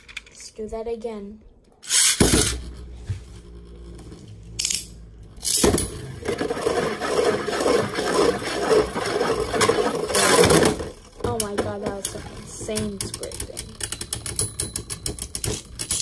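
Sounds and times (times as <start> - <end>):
spinning tops rattling and scraping: 1.8 - 2.9, 6.7 - 16.0
spinning top whirring: 5.4 - 16.0.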